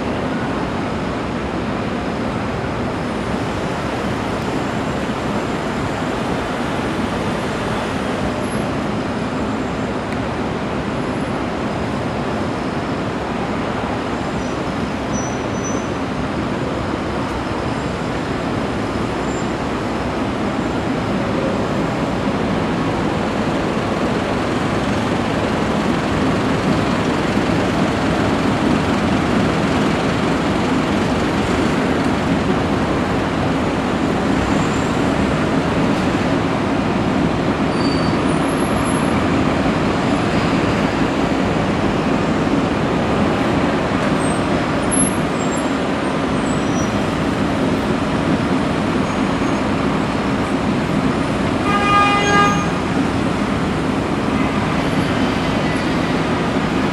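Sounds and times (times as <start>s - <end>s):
city street traffic: 0.0s - 56.9s
vehicle horn honking: 51.6s - 52.8s.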